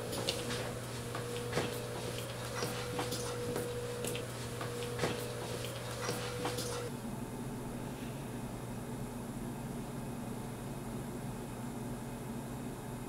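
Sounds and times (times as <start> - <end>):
footsteps on hard floor: 0.0 - 6.9
faint steady whine: 0.0 - 9.4
steady low hum: 0.0 - 13.0.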